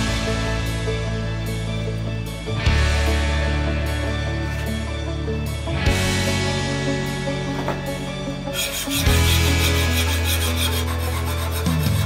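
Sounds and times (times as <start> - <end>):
background music with sustained tones: 0.0 - 12.0
whetstone rubbing on knife blade: 8.5 - 12.0.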